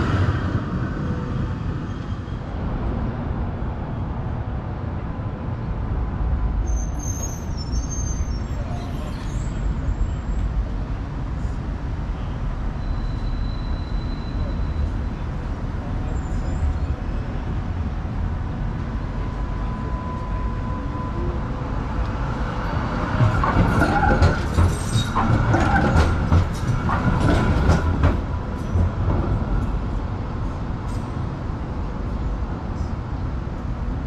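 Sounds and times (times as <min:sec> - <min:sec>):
low rumble of road traffic: 0:00.0 - 0:34.0
tram wheels clacking over rail joints: 0:21.8 - 0:31.7.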